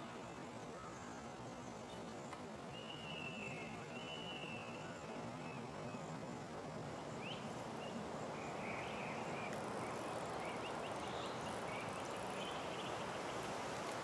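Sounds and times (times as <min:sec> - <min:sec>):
steady wind: 0:00.0 - 0:14.0
small birds chirping: 0:07.2 - 0:13.5.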